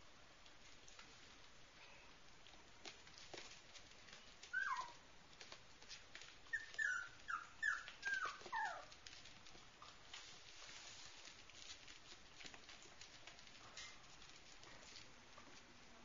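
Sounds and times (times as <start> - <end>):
puppies yipping: 4.4 - 5.0, 6.4 - 9.1.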